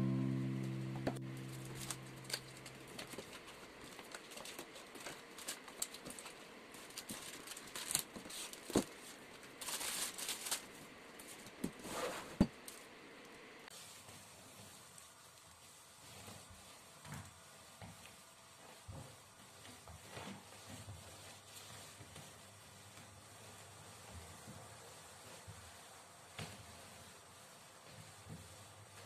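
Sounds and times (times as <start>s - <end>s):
plastic packets crinkling: 1.4s - 8.7s, 9.6s - 10.8s.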